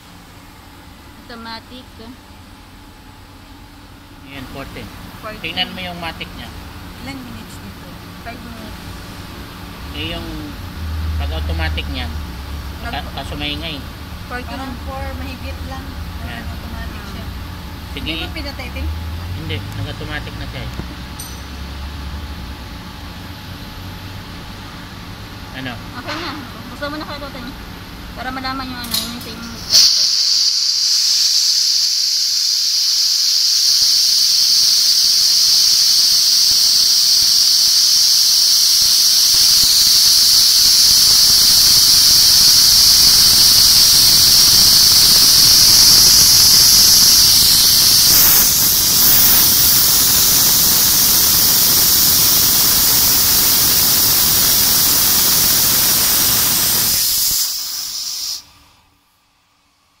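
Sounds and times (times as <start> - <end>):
low noise underneath: 0.0 - 29.8
compressed air hissing from valve: 28.9 - 58.7.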